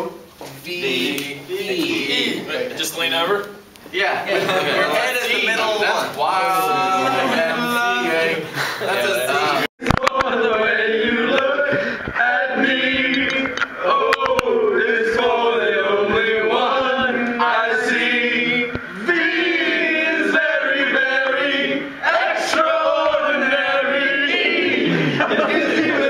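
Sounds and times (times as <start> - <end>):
men singing in chorus: 6.4 - 26.0.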